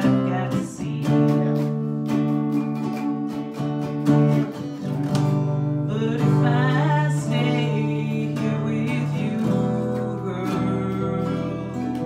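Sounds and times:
woman singing: 0:00.0 - 0:01.8, 0:05.5 - 0:12.0
acoustic guitar strumming: 0:00.0 - 0:12.0.

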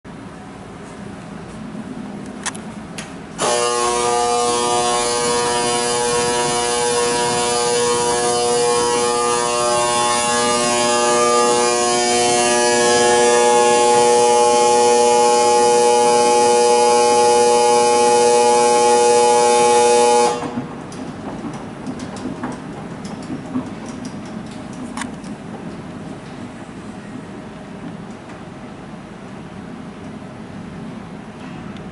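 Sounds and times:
steady electronic alarm buzz: 0:03.4 - 0:20.6.

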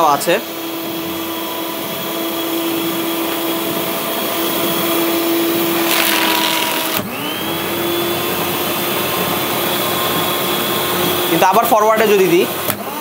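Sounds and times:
paper shredder motor hum: 0:00.0 - 0:13.0
shredder crunching paper: 0:04.4 - 0:13.0.

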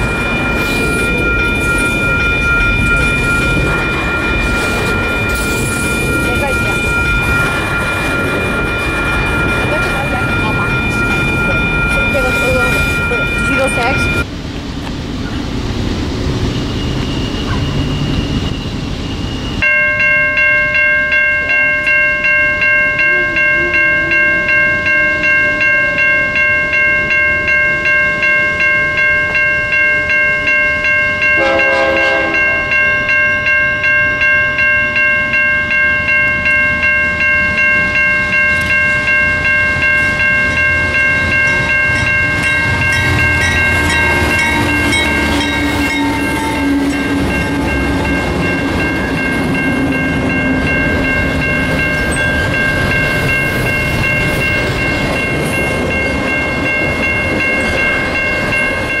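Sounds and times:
railroad bell ringing: 0:00.0 - 0:14.4, 0:16.2 - 0:59.0
train rumbling past: 0:00.0 - 0:59.0
train horn note: 0:31.4 - 0:32.6, 0:43.8 - 0:47.7.

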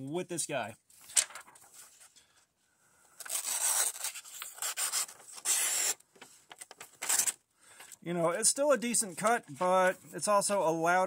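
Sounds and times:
knife slicing paper: 0:03.2 - 0:06.0.

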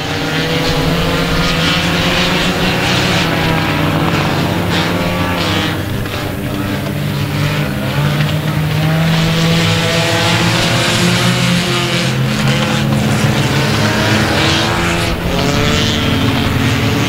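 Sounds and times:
racing car engines at high revs: 0:00.0 - 0:17.0.

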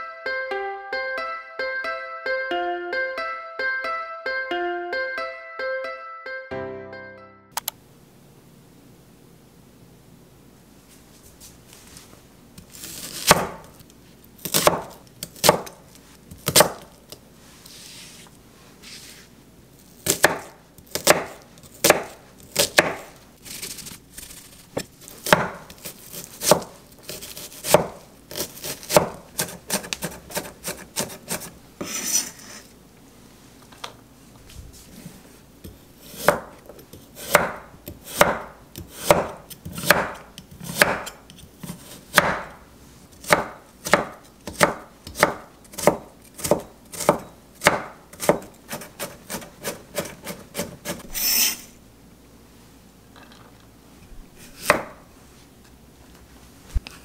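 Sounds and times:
knife chopping on wooden board: 0:12.9 - 0:13.7, 0:14.4 - 0:15.8, 0:16.4 - 0:16.9, 0:20.0 - 0:23.1, 0:24.8 - 0:32.3, 0:35.7 - 0:42.6, 0:43.2 - 0:51.0, 0:54.6 - 0:55.0.

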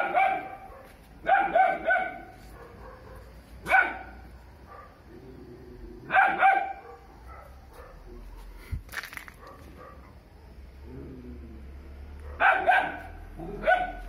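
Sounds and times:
puppy barking: 0:00.0 - 0:05.0, 0:06.1 - 0:08.2, 0:09.4 - 0:10.2, 0:12.2 - 0:14.0.

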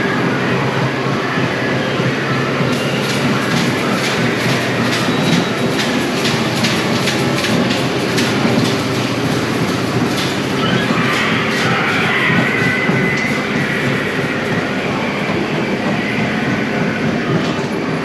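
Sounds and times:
ride car rattling on track: 0:00.0 - 0:18.0
high squeal: 0:10.5 - 0:17.4.

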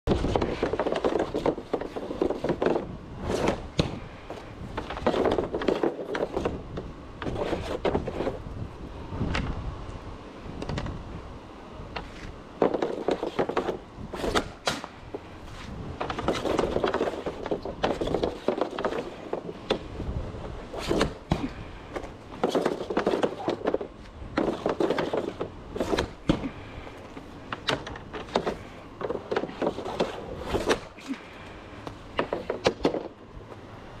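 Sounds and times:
puck scraping over plastic tiles: 0:00.1 - 0:08.5, 0:11.9 - 0:14.5, 0:15.1 - 0:19.9, 0:21.9 - 0:31.0.

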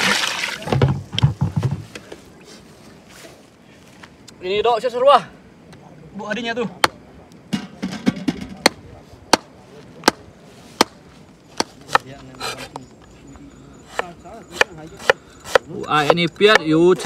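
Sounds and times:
cleaver chopping on cutting board: 0:13.9 - 0:16.7.

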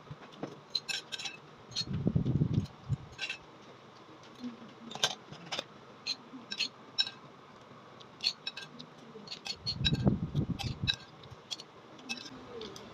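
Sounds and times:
metal spoon scraping ceramic bowl: 0:08.2 - 0:12.4.

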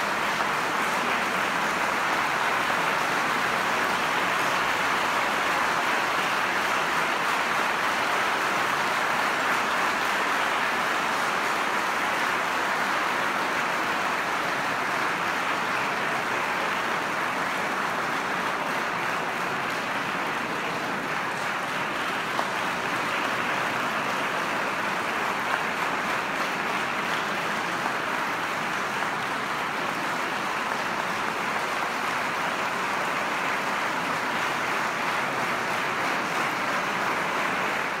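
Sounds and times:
audience applauding: 0:00.0 - 0:38.0.

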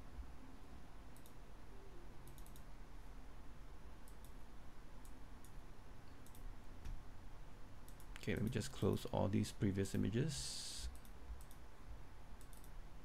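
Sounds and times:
low background hum: 0:00.0 - 0:13.0
computer mouse clicks: 0:01.1 - 0:01.4, 0:02.2 - 0:02.7, 0:04.0 - 0:04.4, 0:06.2 - 0:07.0, 0:07.8 - 0:09.0, 0:10.8 - 0:11.6, 0:12.4 - 0:12.8.

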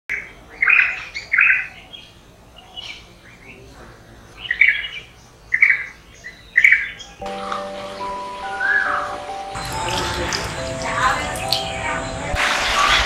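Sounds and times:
birds calling: 0:00.1 - 0:12.4.

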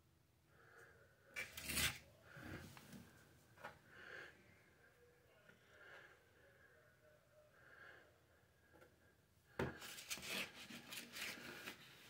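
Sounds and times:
faint breathing: 0:00.5 - 0:01.4, 0:02.2 - 0:09.9
stick scraping compound: 0:01.4 - 0:02.6.

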